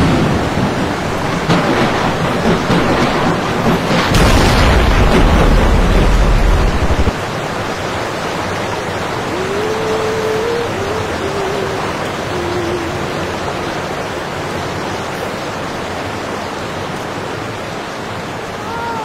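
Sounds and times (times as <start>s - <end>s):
deep rumble: 0.0s - 7.2s
heavy waves breaking: 0.0s - 19.0s.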